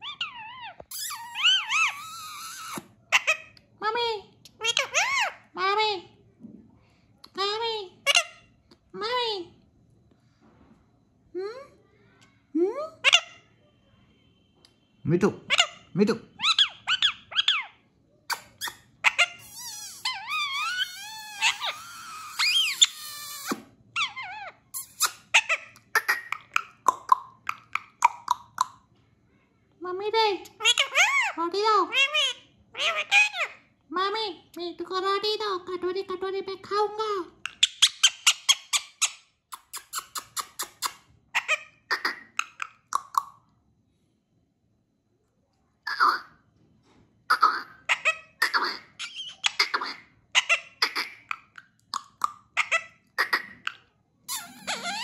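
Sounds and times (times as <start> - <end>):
parakeet squawking: 0.0 - 3.6, 4.5 - 5.5, 8.0 - 8.5, 13.0 - 13.5, 15.4 - 28.6, 30.5 - 33.6, 37.4 - 43.2, 47.3 - 55.0
parrot chattering: 0.0 - 5.9, 7.3 - 9.2, 13.0 - 13.5, 15.4 - 28.8, 30.4 - 33.7, 36.9 - 43.4, 45.8 - 46.4, 47.3 - 55.0
parrot warbling whistled notes: 54.3 - 55.0
short sharp squeaks: 54.3 - 55.0.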